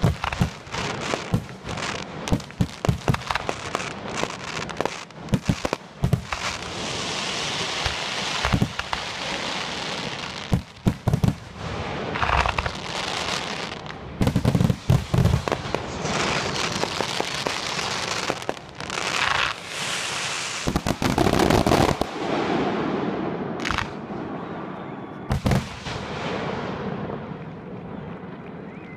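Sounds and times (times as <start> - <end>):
firework crackling: 0.0 - 24.1, 25.3 - 27.4.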